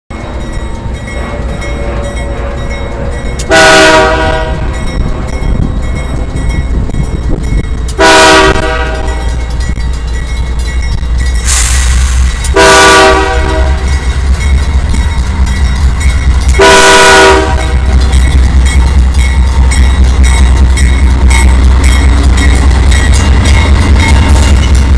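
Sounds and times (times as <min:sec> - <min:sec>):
diesel locomotive engines rumbling: 0:00.1 - 0:24.9
train air horn blasts: 0:03.5 - 0:04.7, 0:08.0 - 0:09.2, 0:11.5 - 0:13.9, 0:16.6 - 0:18.0.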